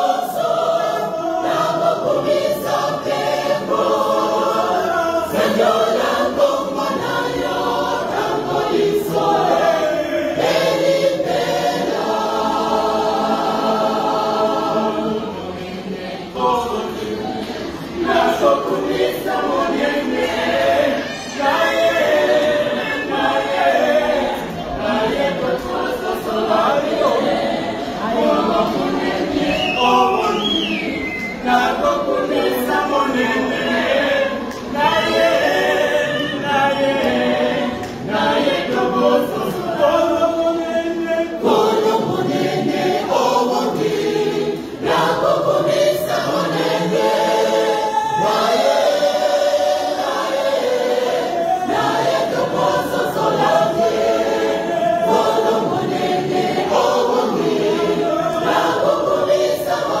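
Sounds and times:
choir singing gospel song: 0:00.0 - 1:00.0.

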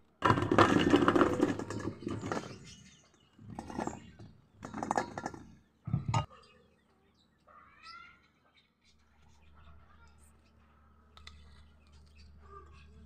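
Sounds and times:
fruit clattering into steel bowl: 0:00.2 - 0:02.8, 0:03.4 - 0:06.3.

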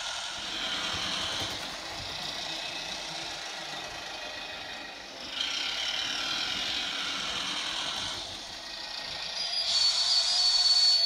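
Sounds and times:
model motor and wheel noise: 0:00.0 - 0:11.0
steady high whine: 0:00.0 - 0:11.0.

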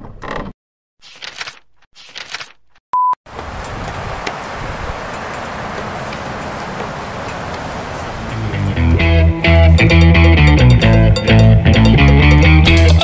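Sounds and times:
short beep: 0:03.0 - 0:03.2.

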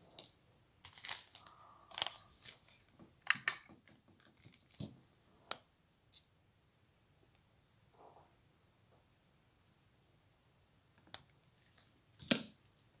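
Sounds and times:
hands handling small objects: 0:00.0 - 0:06.3, 0:11.0 - 0:13.0.

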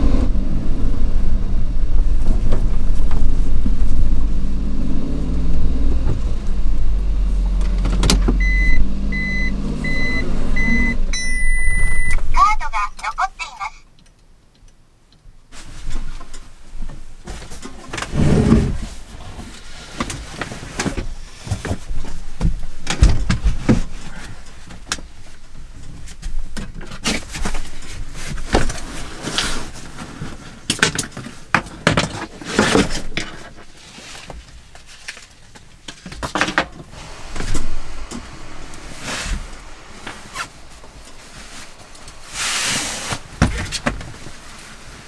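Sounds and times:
rustling of handling: 0:15.5 - 0:37.8, 0:38.8 - 0:45.0.

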